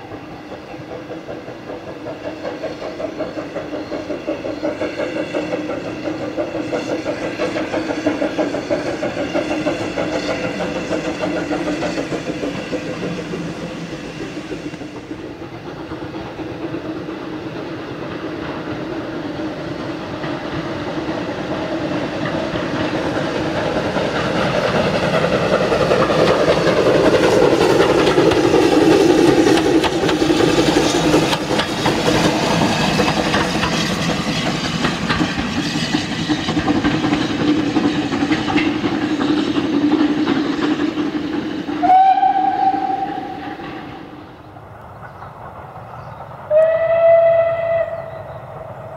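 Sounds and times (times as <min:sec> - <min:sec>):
wheels clicking over rail joints: 0:00.1 - 0:48.9
steam whistle blast: 0:41.8 - 0:43.6, 0:46.5 - 0:48.2.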